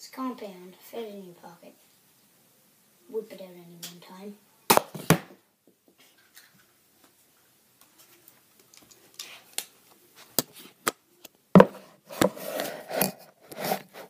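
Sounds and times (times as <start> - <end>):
rubbing and fumbling: 11.6 - 14.0.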